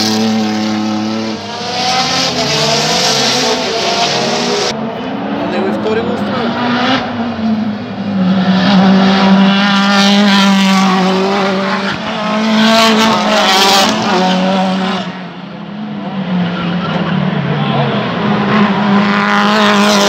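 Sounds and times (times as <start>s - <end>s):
race car engines accelerating: 0.0s - 20.0s.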